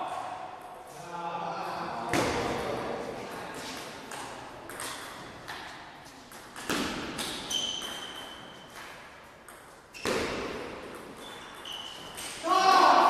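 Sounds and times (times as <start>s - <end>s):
ping pong ball hitting bats: 2.1s - 13.0s
shoes squeaking on floor: 6.0s - 10.4s, 11.0s - 12.5s.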